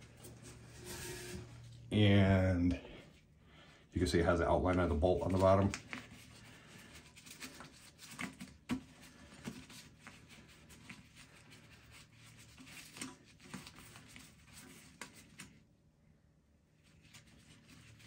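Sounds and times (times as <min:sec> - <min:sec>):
faint handling scratches and clicks: 0:04.6 - 0:15.6.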